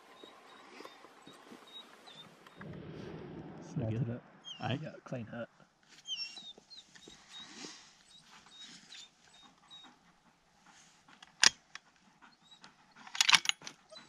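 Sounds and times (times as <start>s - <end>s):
dog whining and panting: 0.1s - 2.6s, 6.0s - 14.0s.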